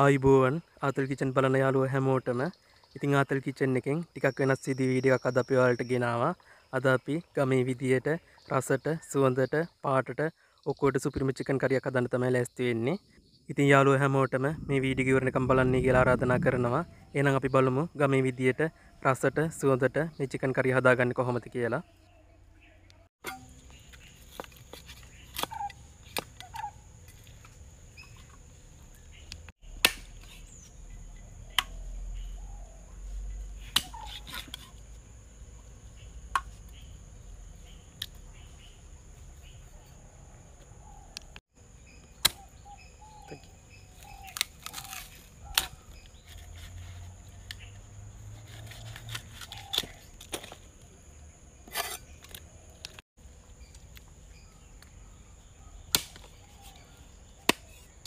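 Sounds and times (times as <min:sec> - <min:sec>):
faint bird chirps: 0:02.2 - 0:07.4, 0:35.5 - 0:47.8.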